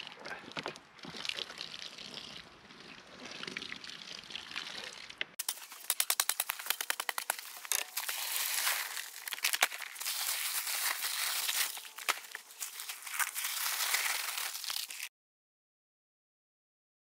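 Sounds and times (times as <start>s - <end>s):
paper bag crinkling and tearing: 5.4s - 15.1s
paper rustling: 5.5s - 15.1s.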